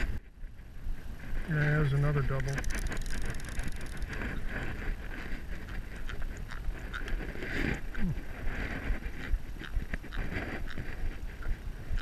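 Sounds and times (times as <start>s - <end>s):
wind rumble on microphone: 0.0s - 12.0s
fishing reel ticking and whirring: 2.3s - 4.7s.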